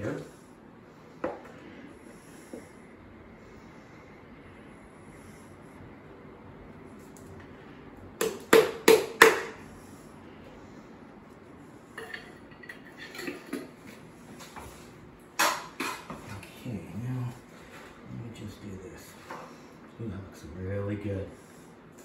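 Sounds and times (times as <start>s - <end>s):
kitchenware clinking: 12.0s - 13.8s, 15.4s - 16.3s.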